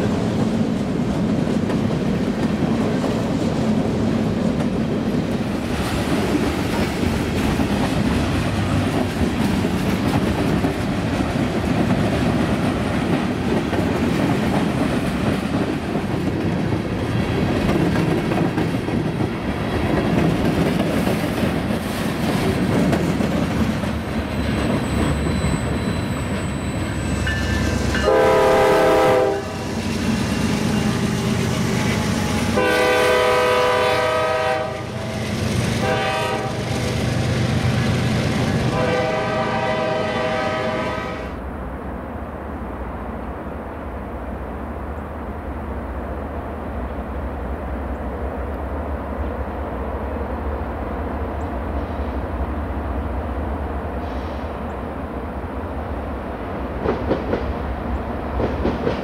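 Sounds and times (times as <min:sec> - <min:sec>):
train wheels rumbling on rails: 0:00.0 - 0:59.0
locomotive air horn blast: 0:28.0 - 0:29.6, 0:32.6 - 0:35.2, 0:35.8 - 0:36.7, 0:38.7 - 0:41.4.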